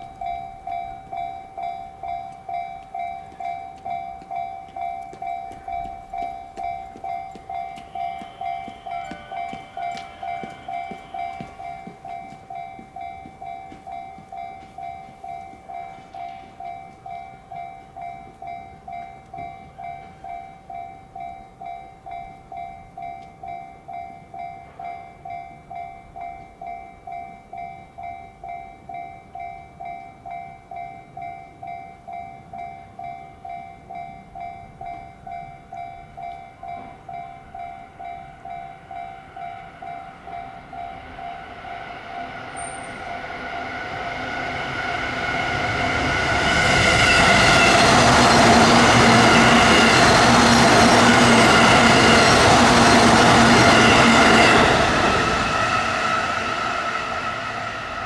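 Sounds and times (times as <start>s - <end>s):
level crossing electronic bell: 0.0s - 23.8s
electric train rumble: 0.0s - 58.0s.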